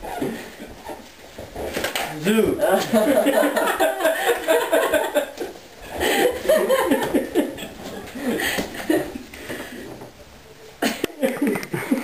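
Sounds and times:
people talking: 2.0 - 3.4
teenagers laughing: 2.6 - 9.4.

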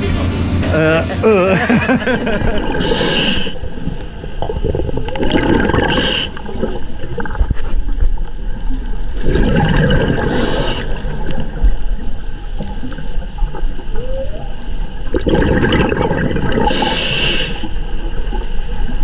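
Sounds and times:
diver exhaling bubbles: 2.3 - 7.7, 9.2 - 11.5, 15.0 - 17.9
humpback whale song: 2.6 - 19.0
dolphin whistle: 6.7 - 9.7, 14.0 - 14.6, 18.4 - 19.0.

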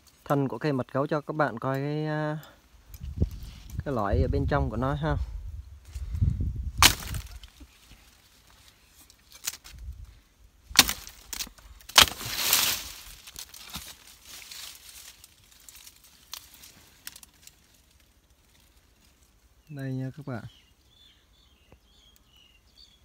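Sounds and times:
leaves and branches rustling: 0.0 - 23.0
machete chopping woody stem: 6.8 - 7.5, 10.7 - 13.9.

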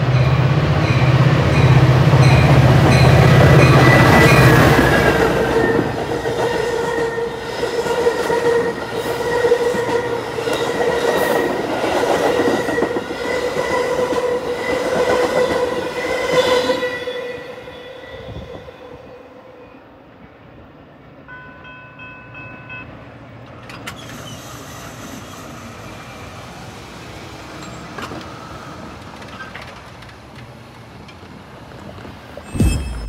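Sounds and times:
train wheels ringing on rails: 0.0 - 18.3, 27.5 - 29.6, 32.5 - 33.0.

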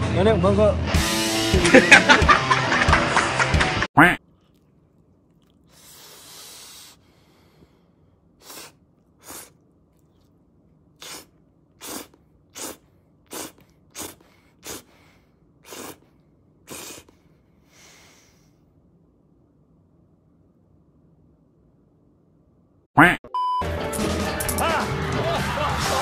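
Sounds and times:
person slurping noodles: 4.2 - 7.6, 8.4 - 10.3, 11.0 - 18.1.

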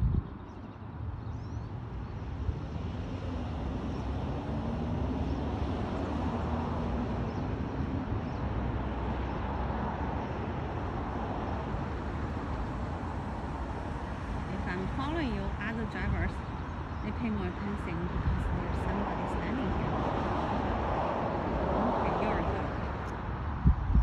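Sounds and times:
road traffic rumble: 0.0 - 24.0.

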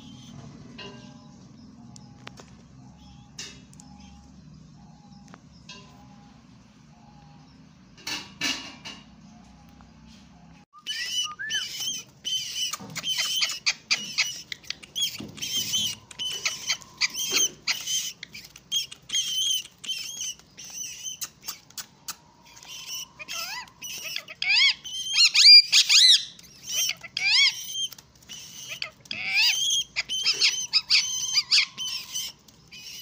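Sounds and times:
parakeet chirping: 10.8 - 33.0.

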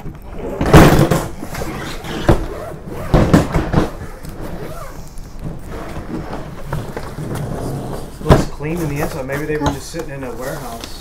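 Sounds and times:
suitcase knocks and thumps: 0.6 - 1.6, 2.2 - 4.1.

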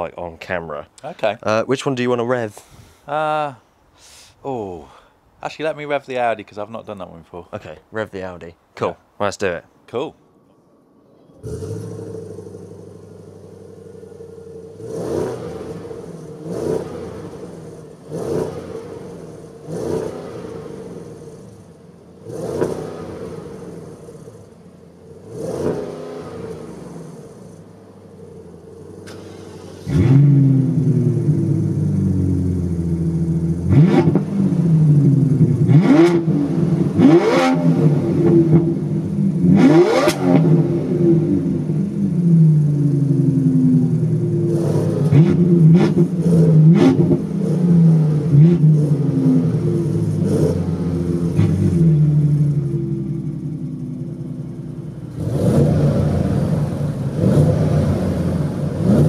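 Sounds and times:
car engine idling and revving: 10.3 - 59.0
loud car engine revving hard: 11.4 - 27.6, 28.3 - 54.0, 55.1 - 59.0.

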